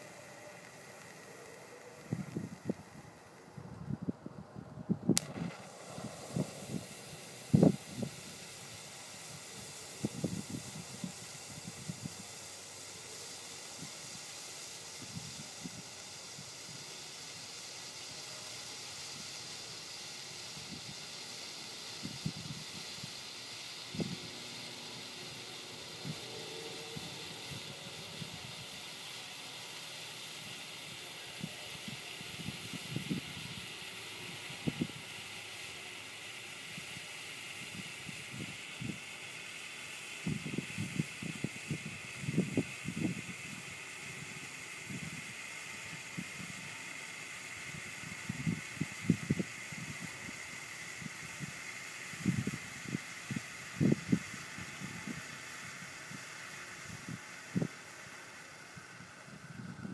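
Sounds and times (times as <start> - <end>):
firework torch hissing: 0.0 - 59.9
soft low pops: 5.1 - 8.3.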